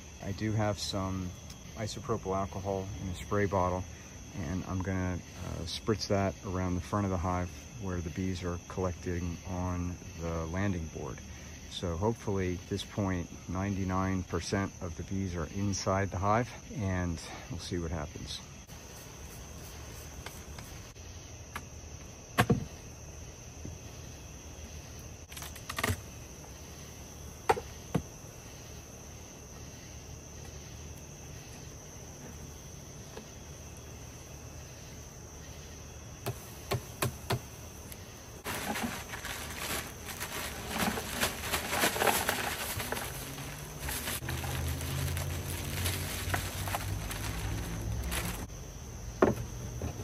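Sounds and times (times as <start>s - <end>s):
crickets trilling: 0.0s - 50.0s
dry ice pellets pouring: 38.4s - 48.5s.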